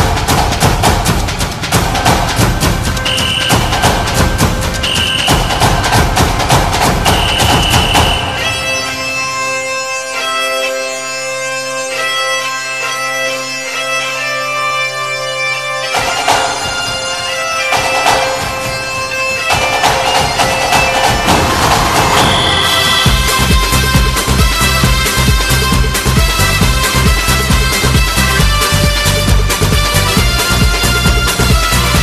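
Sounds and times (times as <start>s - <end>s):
pulsing bass beat: 0.0s - 8.5s, 17.8s - 32.0s
reedy wind instrument melody: 1.2s - 32.0s.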